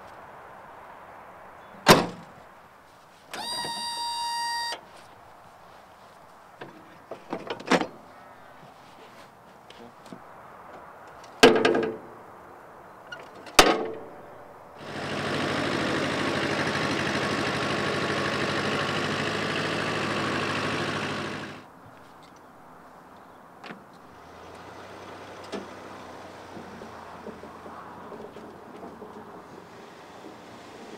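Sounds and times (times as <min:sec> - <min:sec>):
ride-on mower diesel engine running: 0:03.3 - 0:04.8, 0:14.8 - 0:21.6.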